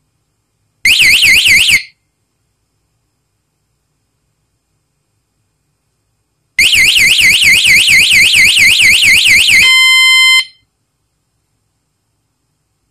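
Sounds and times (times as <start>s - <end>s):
bicycle alarm siren wailing: 0.9s - 1.9s, 6.6s - 10.5s
steady high alarm tone: 6.6s - 10.6s.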